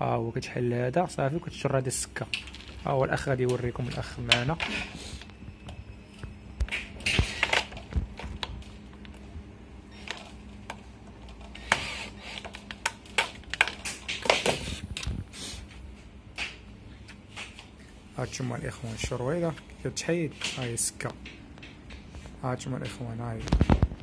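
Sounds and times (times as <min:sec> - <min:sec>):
clicks taps and rustles: 0:12.4 - 0:15.1, 0:20.4 - 0:24.0.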